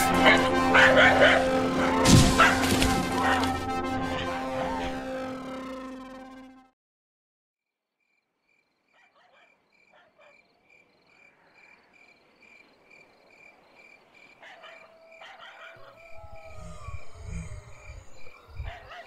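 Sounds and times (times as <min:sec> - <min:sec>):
falling howl-like tone: 0:15.8 - 0:18.6.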